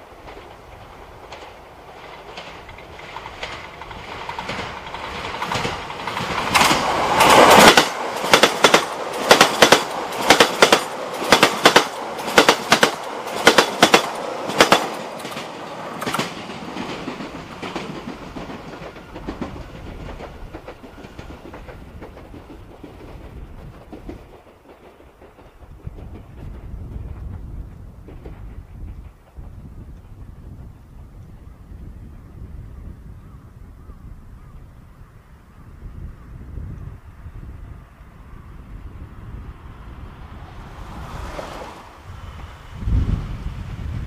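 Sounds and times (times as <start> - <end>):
wheels clacking over rail joints: 0.0 - 31.2
train passing rumble: 0.0 - 44.0.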